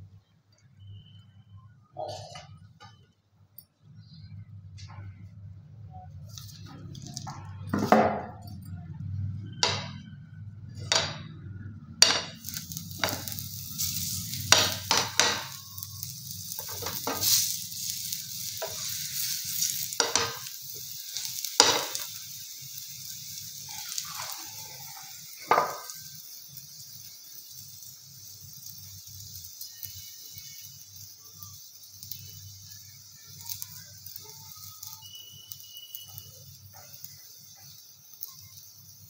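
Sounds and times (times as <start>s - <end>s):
flatbread sizzling in a pan: 0.0s - 3.0s, 5.9s - 39.0s
knocks and clinks of utensils: 9.6s - 10.0s, 14.5s - 15.6s, 20.0s - 20.5s, 21.6s - 22.1s.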